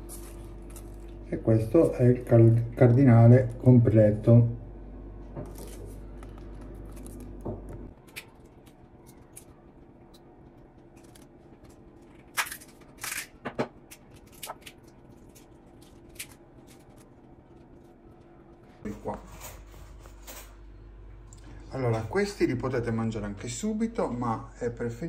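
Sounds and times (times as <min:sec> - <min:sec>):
low steady hum: 0:00.0 - 0:25.0
paper cupcake liners crinkling: 0:05.5 - 0:18.5.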